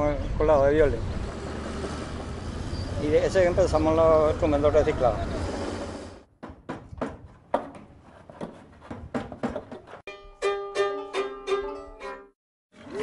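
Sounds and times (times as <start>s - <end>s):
plucked string notes: 10.1s - 12.3s.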